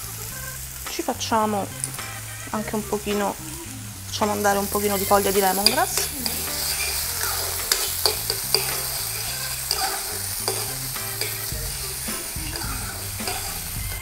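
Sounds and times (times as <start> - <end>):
corn sizzling in oil: 0.0 - 14.0
metal spoon clinking pan: 4.7 - 14.0.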